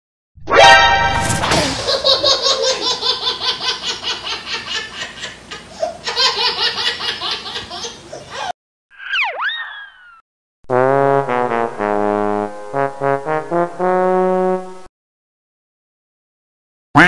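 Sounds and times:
swooping tone: 0.4 - 2.3
high-pitched cartoon giggling: 1.5 - 8.5.

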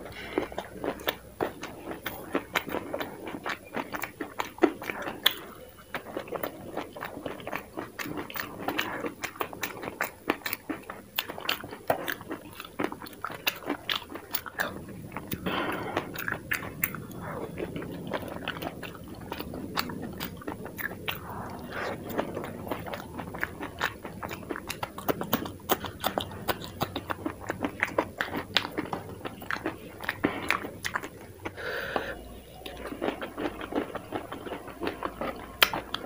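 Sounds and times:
crunchy food chewing: 0.0 - 36.0
soft mouth sounds: 11.2 - 36.0.

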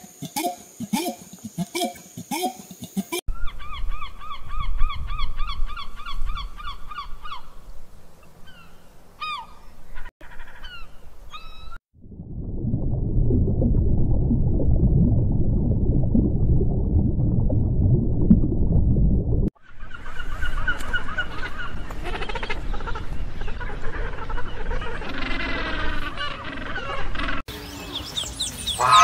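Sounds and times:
low rumble of aquarium water: 12.0 - 19.5
gulls and terns calling: 19.6 - 29.0.

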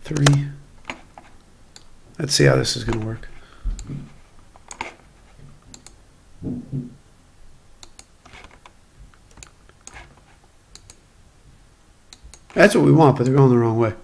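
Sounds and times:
faint room hiss: 0.0 - 14.0
mouse and keyboard clicks: 5.7 - 6.0, 7.8 - 11.0.

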